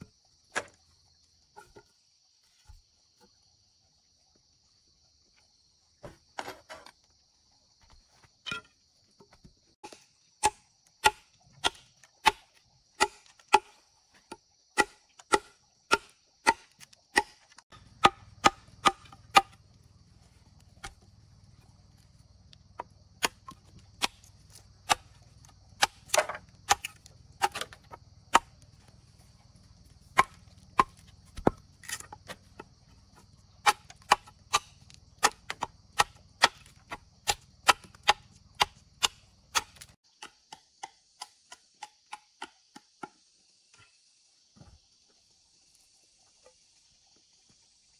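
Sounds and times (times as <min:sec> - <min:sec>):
blade chopping wood: 0:09.4 - 0:19.6, 0:22.8 - 0:28.6, 0:30.1 - 0:43.2.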